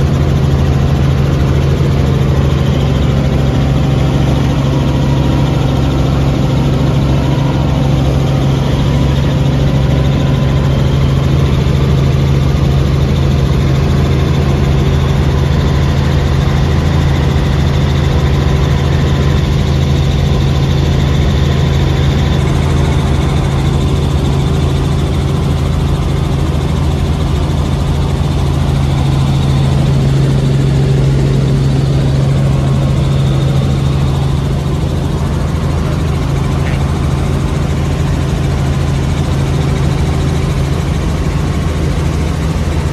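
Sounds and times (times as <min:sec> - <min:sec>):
helicopter engine and rotor drone: 0:00.0 - 0:42.9.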